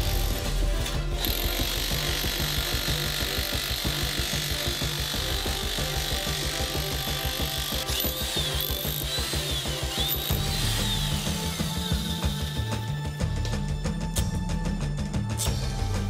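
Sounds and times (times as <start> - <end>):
demolition hammer on concrete: 0.0 - 12.1
background music: 0.0 - 16.0.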